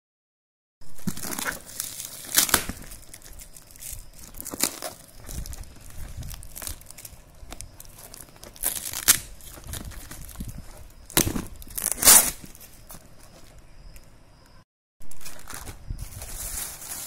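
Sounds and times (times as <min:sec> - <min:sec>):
paper wrapping tearing: 0:01.0 - 0:07.2, 0:07.8 - 0:10.4, 0:11.2 - 0:12.6
paper wrapping rustling: 0:01.0 - 0:13.6, 0:15.0 - 0:17.0.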